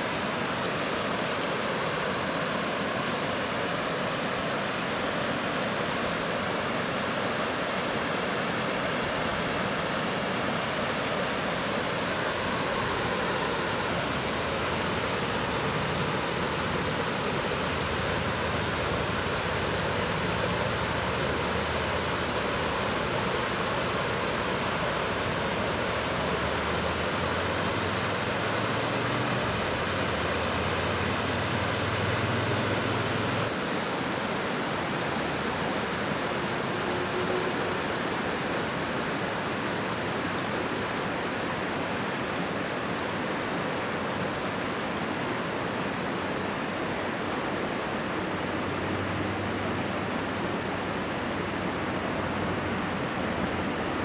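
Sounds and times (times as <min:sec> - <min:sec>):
stream water pouring over ledge: 0:09.5 - 0:40.2.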